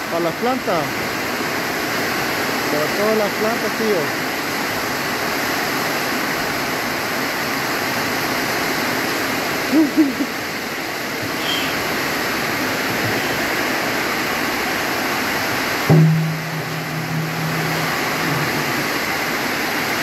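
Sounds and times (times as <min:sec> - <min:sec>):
heavy rain pouring: 0:00.0 - 0:20.0
wavering pitched notes: 0:15.9 - 0:18.8.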